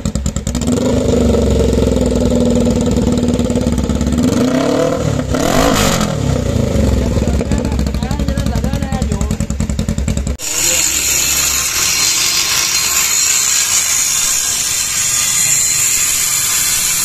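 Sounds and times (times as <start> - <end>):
motorcycle engine idling: 0.0 - 4.4, 6.1 - 10.4
motorcycle engine revving: 0.0 - 17.0.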